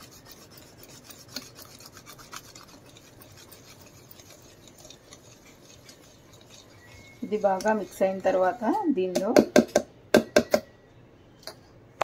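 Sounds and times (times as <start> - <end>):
whisk beating batter in a bowl: 0.0 - 9.5.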